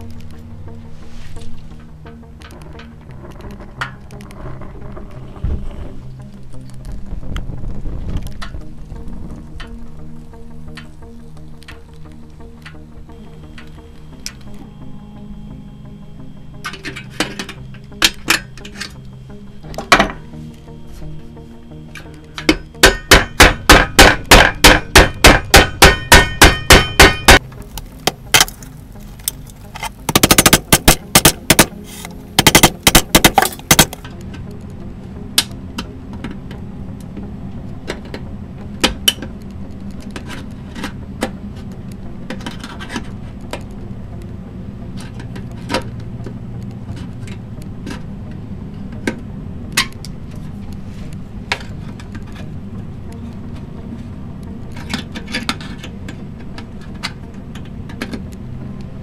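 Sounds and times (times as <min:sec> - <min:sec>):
hammer striking tin can: 0:22.8 - 0:27.4, 0:30.1 - 0:31.8, 0:32.4 - 0:34.0.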